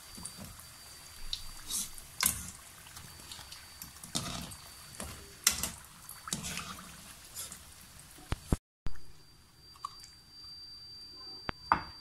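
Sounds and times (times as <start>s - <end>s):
hot oil sizzling: 0.0s - 8.6s.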